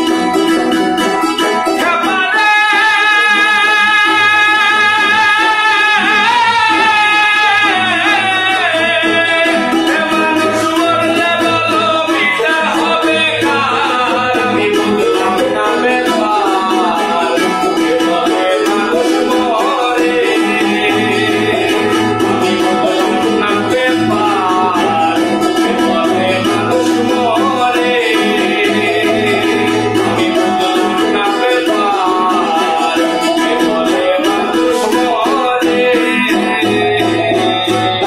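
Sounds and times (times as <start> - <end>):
man singing: 0.0 - 38.0
strummed acoustic guitar: 0.0 - 38.0
ukulele: 0.0 - 38.0.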